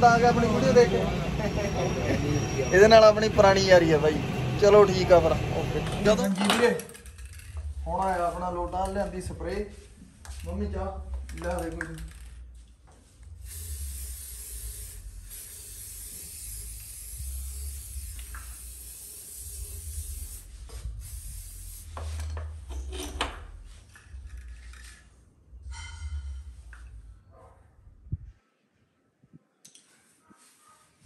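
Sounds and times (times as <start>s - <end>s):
spray can rattling: 13.4s - 22.4s
spray-paint can hissing: 13.4s - 22.4s.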